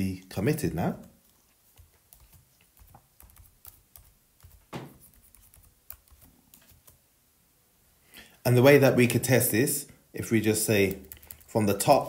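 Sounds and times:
computer keyboard typing: 1.7 - 7.0, 10.8 - 11.9
soft knock: 4.7 - 5.0.

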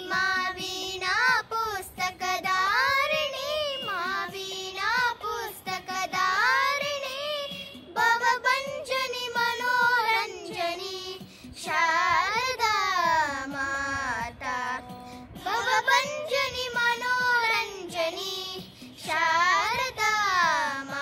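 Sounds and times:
girls singing unaccompanied: 0.0 - 21.0.

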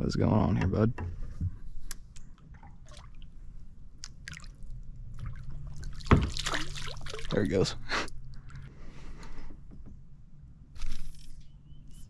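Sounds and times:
paddle dipping and dripping: 1.8 - 8.8
small water splashes: 2.1 - 3.4, 4.0 - 7.6.

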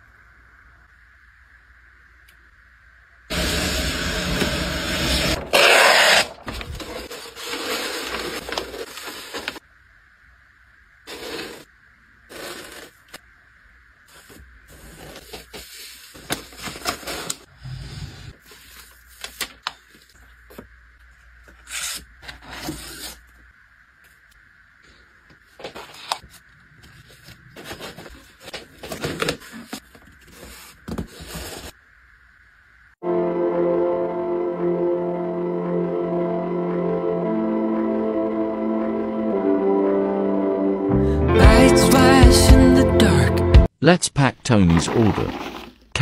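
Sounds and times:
packing materials rustling: 5.5 - 9.6, 14.1 - 17.5, 25.6 - 31.7
music: 33.0 - 43.7.

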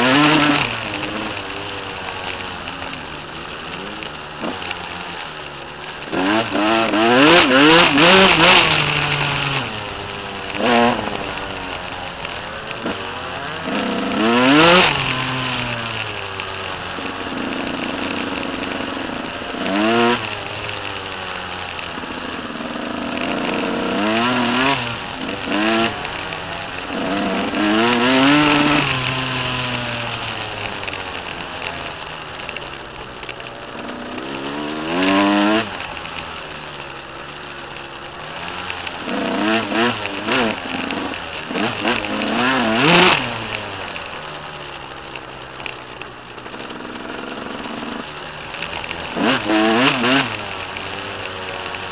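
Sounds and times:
dirt bike engine revving: 0.0 - 51.9.

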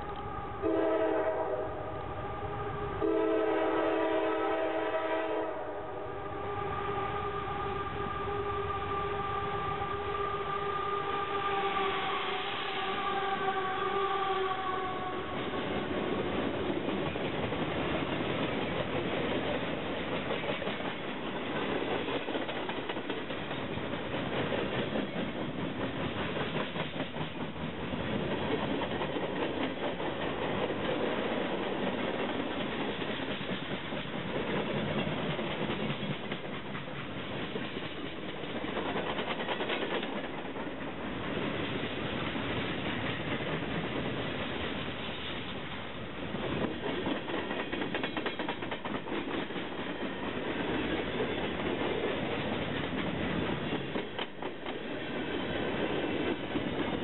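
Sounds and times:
locomotive horn: 0.0 - 16.4
freight train rumble: 0.0 - 57.0.

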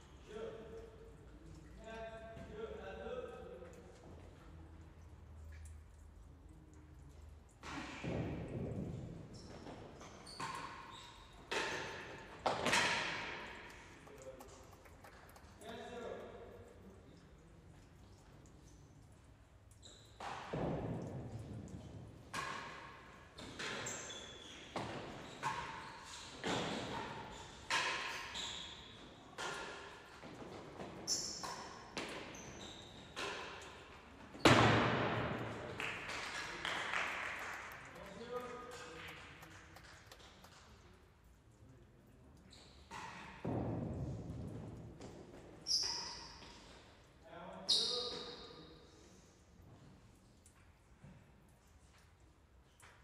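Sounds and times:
ball bouncing off walls: 7.6 - 16.1, 20.1 - 28.6, 29.4 - 40.7
ball struck by rackets: 11.5 - 13.8, 34.4 - 35.8.

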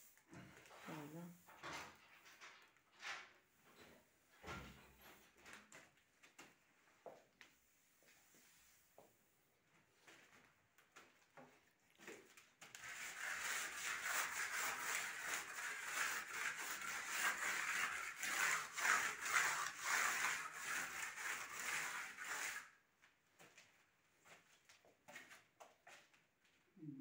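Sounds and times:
pad rubbing on plaster wall: 12.8 - 22.7.

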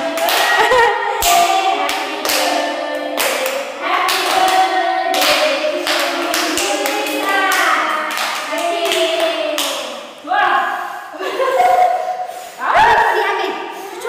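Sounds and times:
people clapping: 0.0 - 10.1
group singing birthday song: 0.0 - 13.1.

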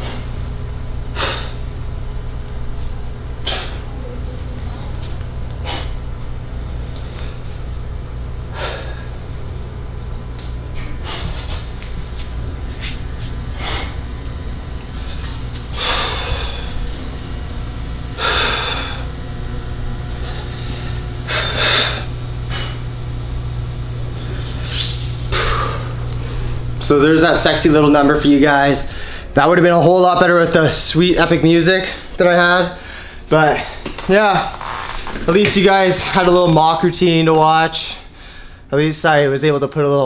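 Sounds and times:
steady low hum: 0.0 - 40.0
man breathing hard: 1.1 - 1.7, 3.4 - 4.0, 5.6 - 6.0, 7.0 - 7.7, 8.5 - 9.3, 10.8 - 11.7, 13.4 - 14.2, 14.9 - 17.0, 18.2 - 19.2, 20.1 - 22.9, 24.1 - 26.7, 28.8 - 29.4, 32.8 - 33.9, 37.8 - 38.7.

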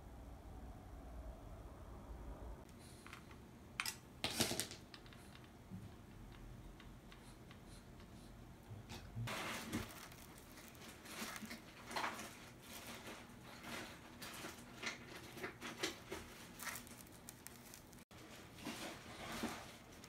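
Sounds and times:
cat paws on styrofoam and cardboard: 9.3 - 20.0.

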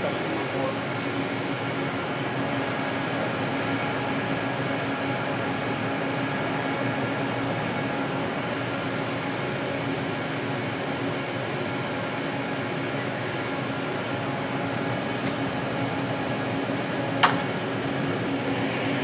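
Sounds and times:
machinery humming: 0.0 - 19.0
sharp click: 17.2 - 17.5.

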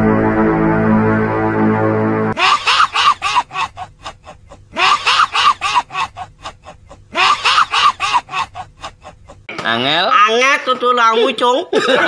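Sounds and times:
witch-like cackling laugh: 2.4 - 9.5.

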